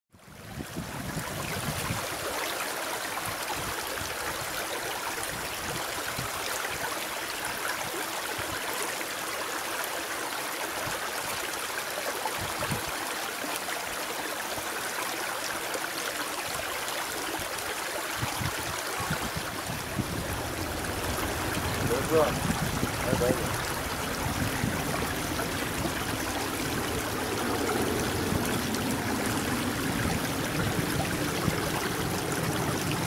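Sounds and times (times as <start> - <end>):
low rumbles: 19.2 - 33.0
distant jet engines roaring: 20.1 - 33.0.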